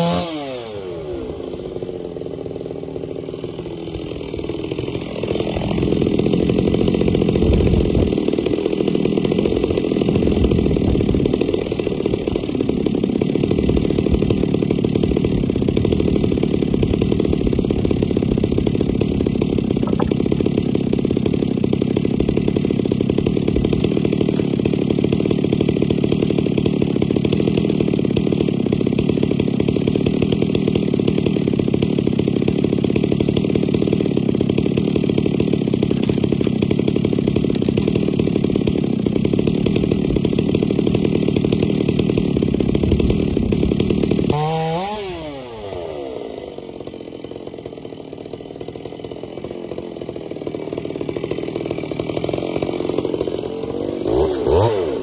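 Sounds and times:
chainsaw idling: 0.0 - 55.0.

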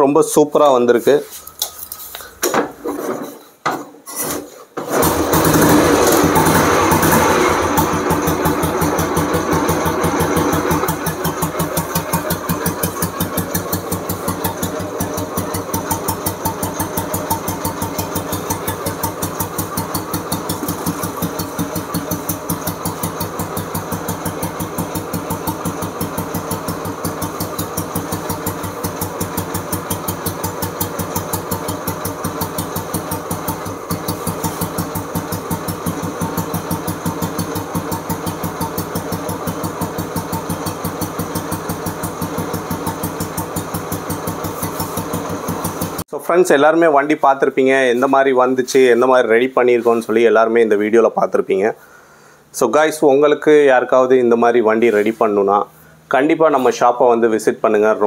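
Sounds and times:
motorcycle engine idling: 5.1 - 46.0.

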